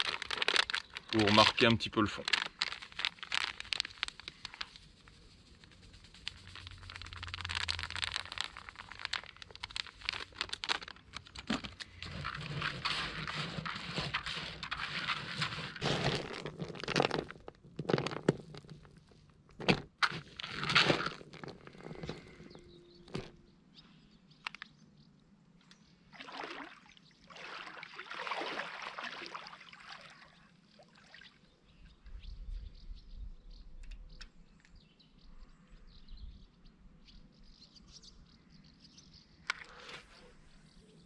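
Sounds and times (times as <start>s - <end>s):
hand mixing fishing bait: 0.0s - 23.3s
plastic packet crinkling: 0.0s - 23.4s.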